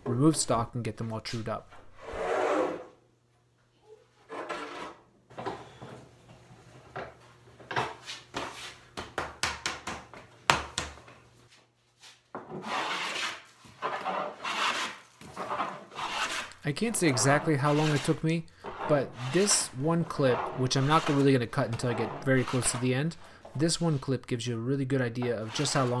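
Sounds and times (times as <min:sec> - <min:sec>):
plane rasping along wood: 0:12.6 - 0:22.9, 0:25.2 - 0:26.0.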